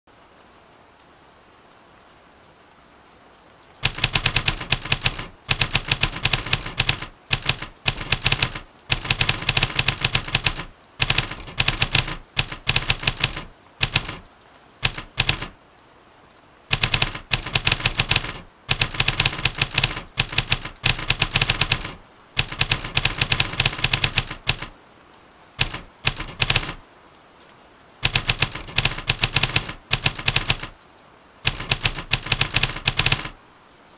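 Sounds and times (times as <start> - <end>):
rain hiss: 0.1 - 33.9
typewriter keys clacking: 3.8 - 15.6, 16.7 - 24.7, 25.6 - 26.8, 28.0 - 30.8, 31.5 - 33.4.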